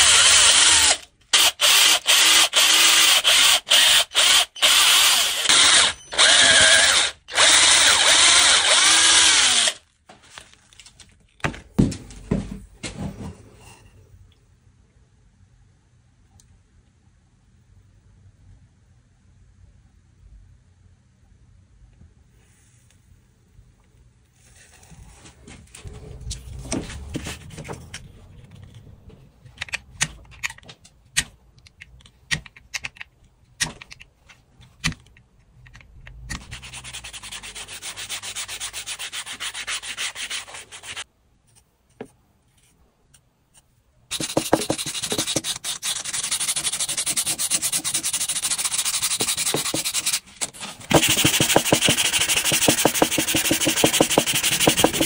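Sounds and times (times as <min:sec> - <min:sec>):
handling taps and clicks: 0:27.5 - 0:36.5
sandpaper rasping on wood: 0:36.6 - 0:41.1, 0:44.1 - 0:50.2, 0:50.9 - 0:55.0.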